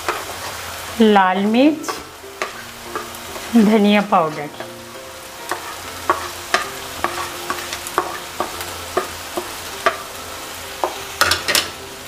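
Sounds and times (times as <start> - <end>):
spatula scraping a pan: 0.0 - 0.8, 1.4 - 4.7, 5.4 - 10.1
food sizzling in oil: 0.0 - 12.0.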